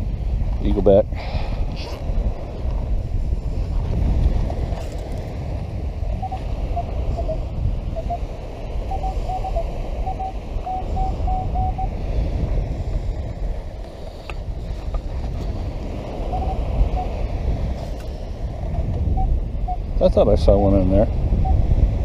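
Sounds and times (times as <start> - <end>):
wind rumble on microphone: 0.0 - 22.0
metal detector beeps: 6.1 - 7.4, 8.9 - 12.0, 16.2 - 17.2, 19.1 - 19.9, 21.4 - 21.6.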